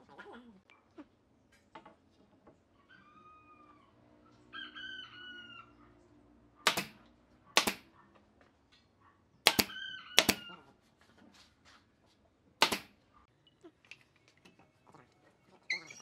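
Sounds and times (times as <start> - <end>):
nail gun firing into wood: 6.6 - 7.0, 7.6 - 7.9, 9.4 - 10.5, 12.6 - 13.0
faint drawn-out pitched calls: 14.5 - 16.0.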